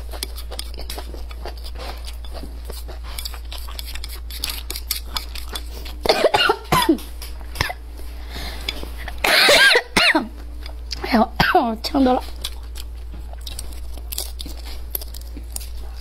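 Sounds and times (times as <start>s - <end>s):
woman chewing: 0.0s - 11.0s, 12.3s - 16.0s
woman coughing: 6.1s - 7.8s, 9.2s - 10.3s, 11.0s - 11.8s.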